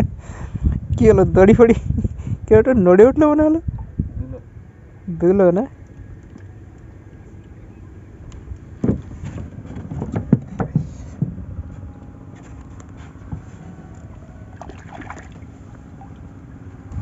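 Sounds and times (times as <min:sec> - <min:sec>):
longline knocking and thumping: 0:08.8 - 0:11.5.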